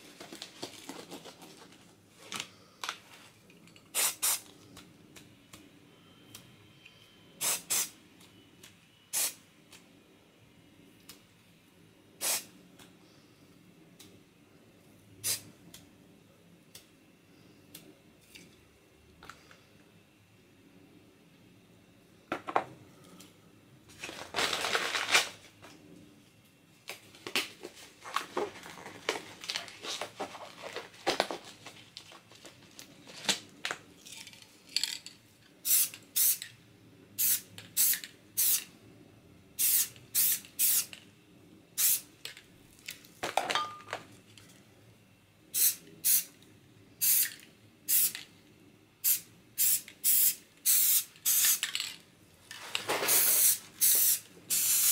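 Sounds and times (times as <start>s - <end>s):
items being handled: 0.0s - 4.1s, 23.9s - 25.9s, 26.8s - 35.6s, 42.2s - 44.6s, 51.3s - 54.2s
aerosol spray can hissing: 4.0s - 4.4s, 7.4s - 7.9s, 9.2s - 9.4s, 12.2s - 12.5s, 35.6s - 36.4s, 37.2s - 38.7s, 39.6s - 40.9s, 41.8s - 42.0s, 45.6s - 46.3s, 47.0s - 48.2s, 49.0s - 51.6s, 53.1s - 54.9s.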